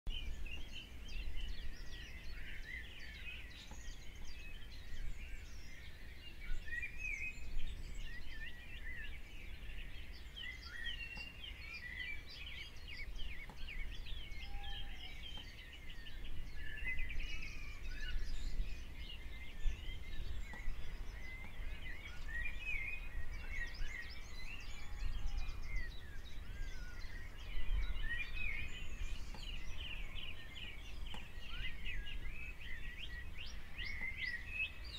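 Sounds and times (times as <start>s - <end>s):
small birds chirping: 0.1s - 34.9s.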